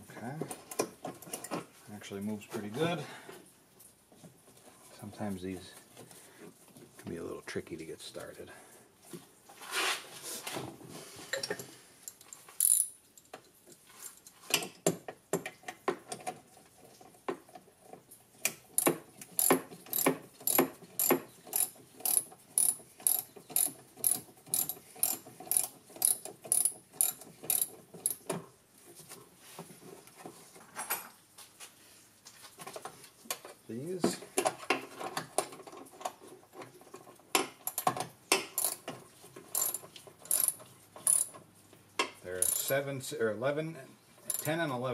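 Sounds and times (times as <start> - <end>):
ratchet wrench clicking: 12.6 - 13.0, 18.8 - 28.2, 38.6 - 38.8, 39.6 - 41.3, 42.4 - 42.7, 44.3 - 44.5.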